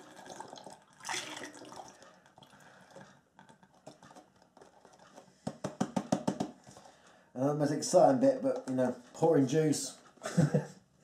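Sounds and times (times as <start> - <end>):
juice pouring and splashing: 0.0 - 5.1.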